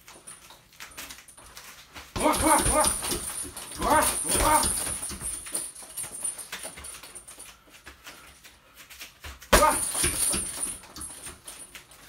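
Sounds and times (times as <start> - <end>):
punch thudding into heavy bag: 2.2 - 5.4, 9.5 - 10.8.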